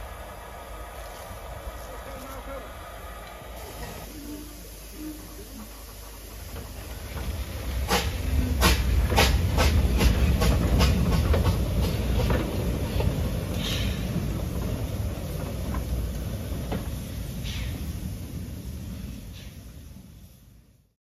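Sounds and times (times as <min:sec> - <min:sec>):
short hisses of steam: 0:00.0 - 0:11.0, 0:12.9 - 0:14.4, 0:16.4 - 0:20.6
steam locomotive exhaust chuffs: 0:00.0 - 0:20.8.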